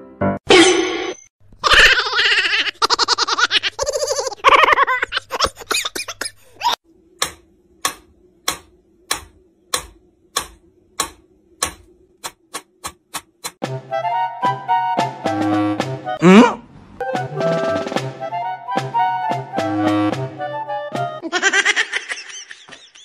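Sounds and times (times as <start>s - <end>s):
pendulum metronome ticking: 7.2s - 13.6s
person's voice: 16.2s - 16.6s.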